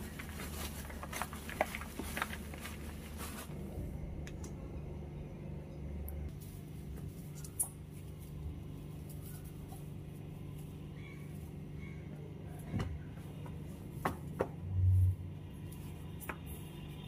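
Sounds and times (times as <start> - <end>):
broom sweeping tiled floor: 0.0 - 3.6
steady low hum: 0.0 - 17.0.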